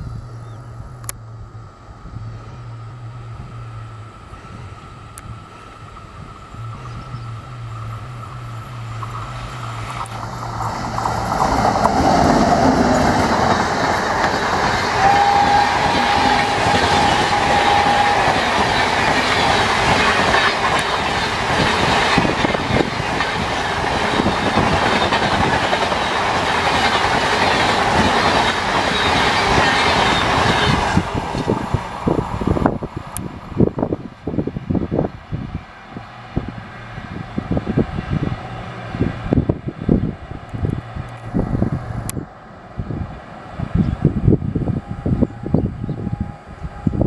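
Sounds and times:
steady tone: 0.0 - 25.3
train rumbling past: 0.0 - 47.0
wheels clattering over rail joints: 5.9 - 32.8.

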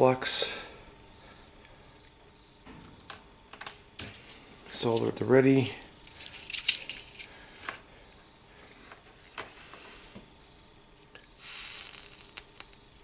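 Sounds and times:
soldering flux sizzling: 11.2 - 13.0.

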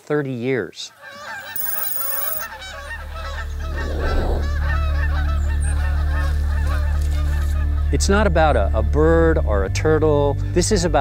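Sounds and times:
geese honking: 2.5 - 8.2
steady low drone: 3.0 - 10.6.

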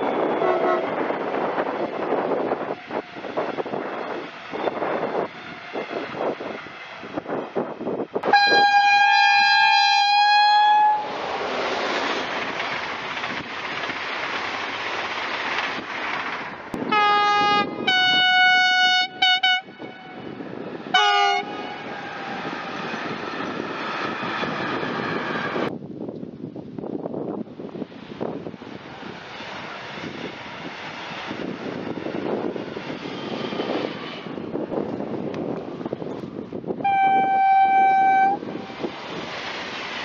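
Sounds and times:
train horn blasts: 0.0 - 1.0, 8.2 - 11.3, 16.8 - 22.1, 36.8 - 38.6.

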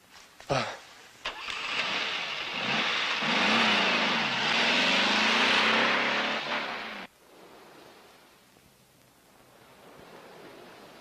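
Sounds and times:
car engine revving: 1.3 - 7.1.

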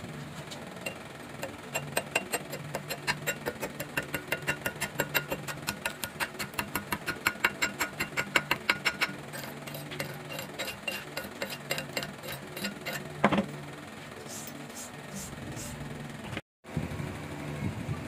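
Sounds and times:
chipping hammer tapping metal: 0.8 - 13.4.

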